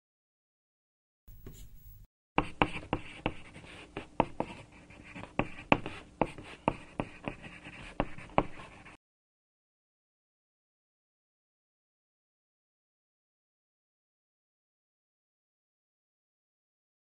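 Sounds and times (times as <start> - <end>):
pen scratching on paper: 1.3 - 1.8, 2.4 - 9.0.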